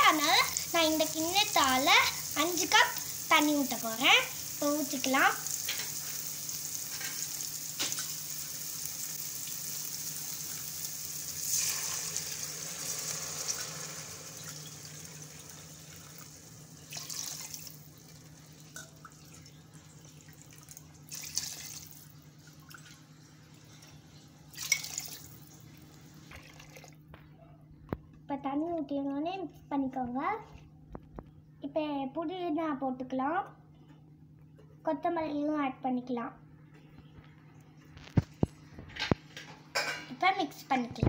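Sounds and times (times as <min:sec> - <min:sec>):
water splashing into pot: 0:11.3 - 0:16.3, 0:16.9 - 0:19.6, 0:20.2 - 0:23.0, 0:24.5 - 0:25.6, 0:26.2 - 0:27.0.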